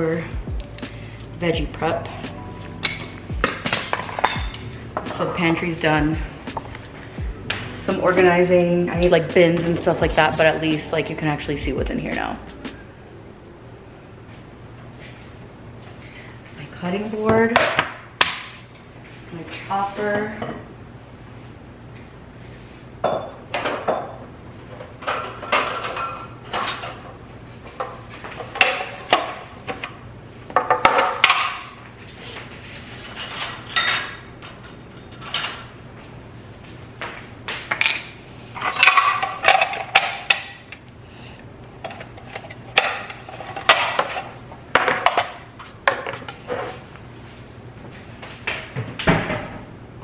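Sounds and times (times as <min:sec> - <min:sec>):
dishes clinking at a sink: 0:23.0 - 0:24.1.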